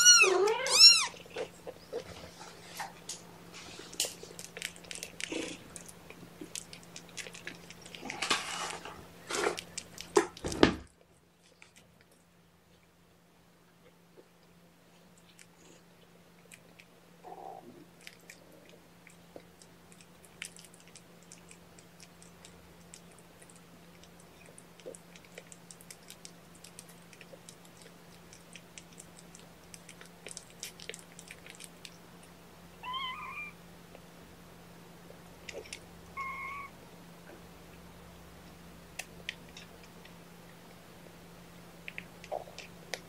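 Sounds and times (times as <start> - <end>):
kitten mewing: 0.0 - 1.2, 32.8 - 33.6, 36.2 - 36.7
steady low hum: 0.0 - 43.0
crunching clicks: 4.0 - 10.6.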